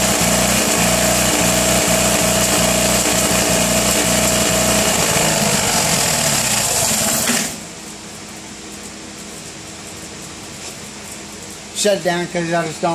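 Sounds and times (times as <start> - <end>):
engine running rough: 0.0 - 7.6
steady high whine: 0.0 - 12.9.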